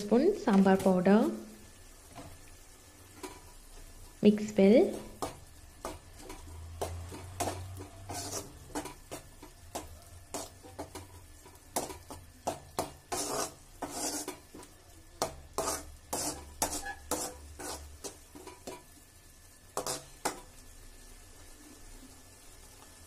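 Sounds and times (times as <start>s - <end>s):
ladle scraping metal pan: 4.9s - 14.7s, 15.5s - 18.8s, 19.8s - 20.4s.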